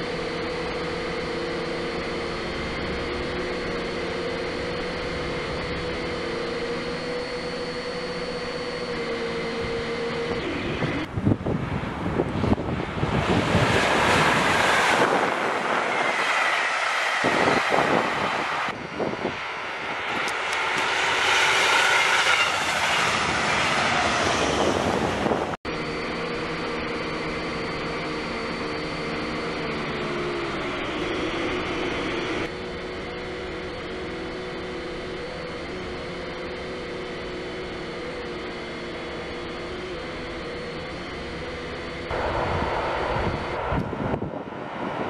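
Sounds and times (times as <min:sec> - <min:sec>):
drone propeller motors whining: 0:00.0 - 0:45.0
train rolling past: 0:13.4 - 0:25.4, 0:42.1 - 0:45.0.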